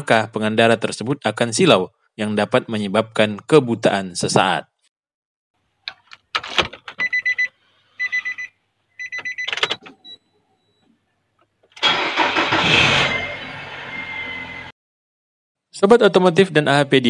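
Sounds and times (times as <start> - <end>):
car engine starting and running: 11.6 - 14.7.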